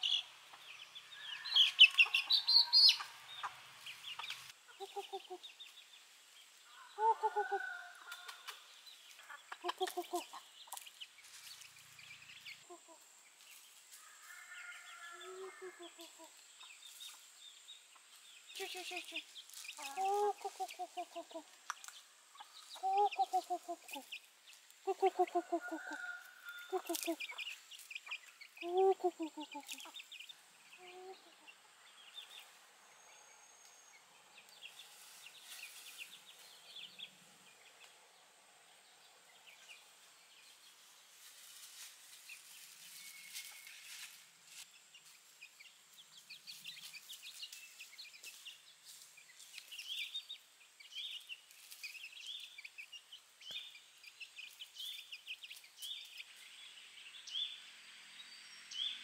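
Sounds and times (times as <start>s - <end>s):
birds chirping: 0.0s - 41.3s.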